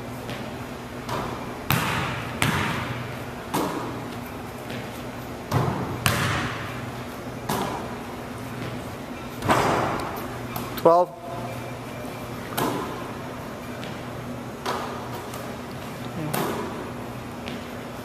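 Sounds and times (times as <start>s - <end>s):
basketball bouncing on wooden floor: 0.3s - 4.0s, 4.6s - 4.9s, 5.5s - 6.8s, 7.5s - 7.9s.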